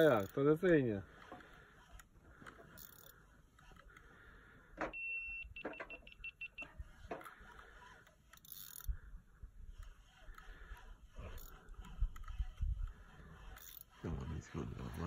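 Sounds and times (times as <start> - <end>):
electronic bite alarm beeps: 4.9 - 6.7.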